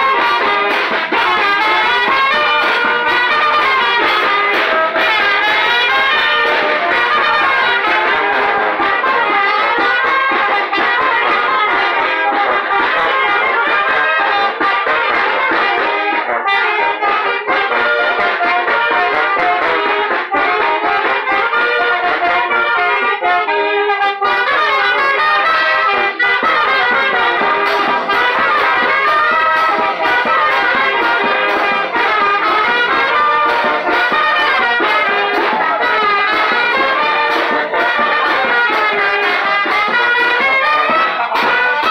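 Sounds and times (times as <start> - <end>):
brass band dance music: 0.0 - 41.9
percussion ticking beat: 0.0 - 41.9.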